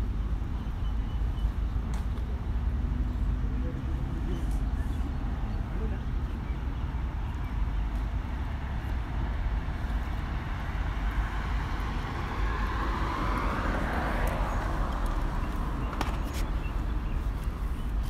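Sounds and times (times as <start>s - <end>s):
low traffic rumble: 0.0s - 18.0s
car passing: 8.4s - 17.0s.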